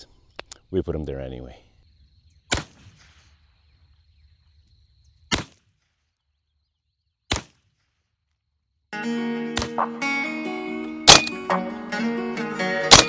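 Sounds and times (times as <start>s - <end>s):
air rifle shots: 2.5s - 3.3s, 5.3s - 5.6s, 7.3s - 7.8s, 11.1s - 11.6s
background music: 9.0s - 13.0s.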